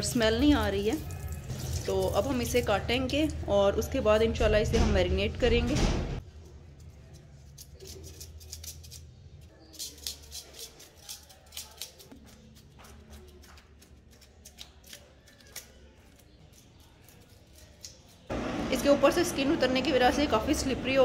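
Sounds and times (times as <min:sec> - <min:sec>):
knife scraping fish scales: 0:06.8 - 0:18.3.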